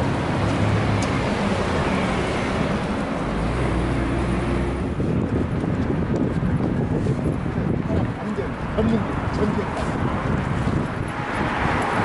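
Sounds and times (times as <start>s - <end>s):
car passing by: 9.6s - 12.0s.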